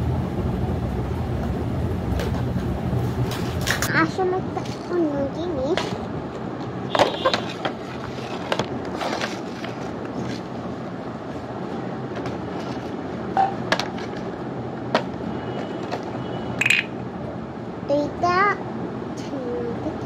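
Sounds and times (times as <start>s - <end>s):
plastic toys rustling and scraping: 3.3s - 6.1s, 6.9s - 10.8s, 11.7s - 14.4s, 15.0s - 16.8s.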